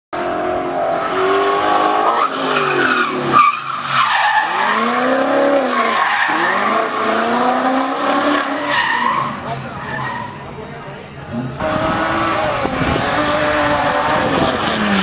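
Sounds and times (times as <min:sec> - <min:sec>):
tyres squealing: 0:08.3 - 0:10.4
car engine revving: 0:11.2 - 0:15.0.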